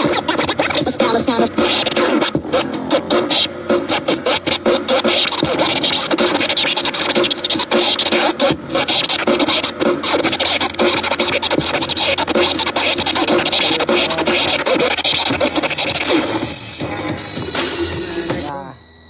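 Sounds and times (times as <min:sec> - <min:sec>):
vinyl record scratching: 0:00.0 - 0:18.5.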